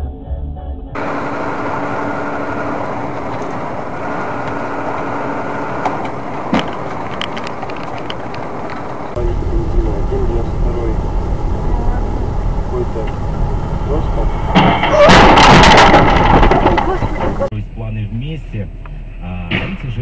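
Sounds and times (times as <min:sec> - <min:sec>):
car engine and tyre noise: 0:01.0 - 0:20.0
faint steady hum: 0:09.1 - 0:20.0.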